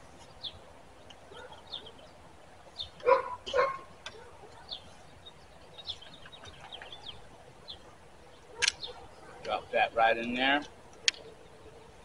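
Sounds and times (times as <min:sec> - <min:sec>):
faint bird chirps: 0:00.1 - 0:09.8
dog barking: 0:01.3 - 0:01.6, 0:03.0 - 0:04.8, 0:08.5 - 0:09.5.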